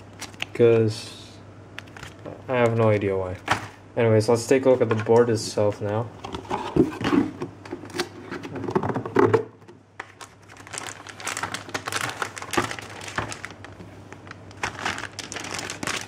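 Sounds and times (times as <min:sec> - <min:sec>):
plastic bag crinkling: 0:00.0 - 0:00.6, 0:10.0 - 0:16.0.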